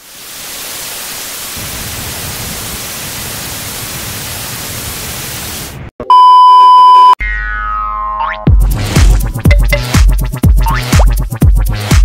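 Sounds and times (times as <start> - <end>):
tv static hiss: 0.0 - 5.8
test-pattern beep tone: 6.0 - 7.2, 9.5 - 10.0.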